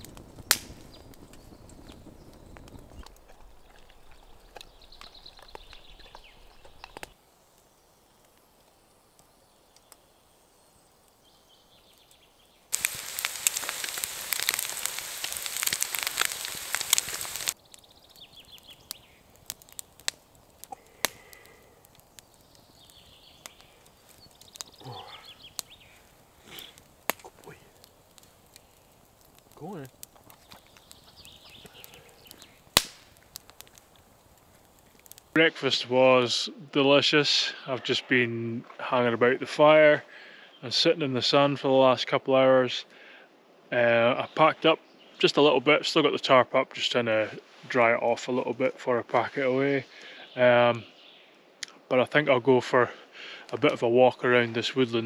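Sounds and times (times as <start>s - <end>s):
wood fire crackling: 0.0s - 38.0s, 43.8s - 55.0s
food sizzling in a pan: 12.7s - 17.6s.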